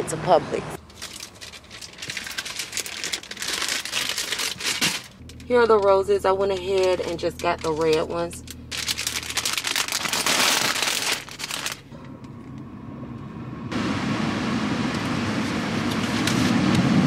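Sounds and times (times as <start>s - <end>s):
plastic sleeve crinkling: 0.8s - 11.9s.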